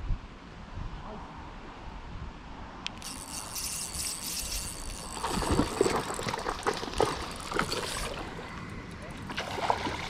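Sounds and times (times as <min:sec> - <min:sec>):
fishing reel whirring: 0:02.9 - 0:09.3
fish splashing in water: 0:04.9 - 0:08.5, 0:09.2 - 0:10.0.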